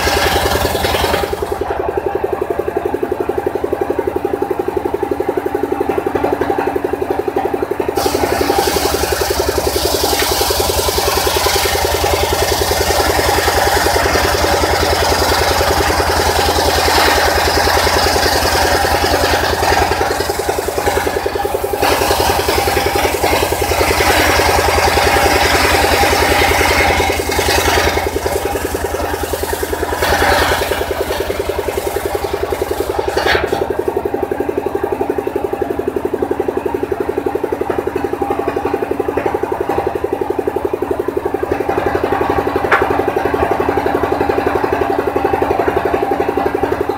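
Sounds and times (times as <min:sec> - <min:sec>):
saw blade ripping log: 0:00.0 - 0:01.7, 0:08.0 - 0:33.9
engine running: 0:00.0 - 0:46.9.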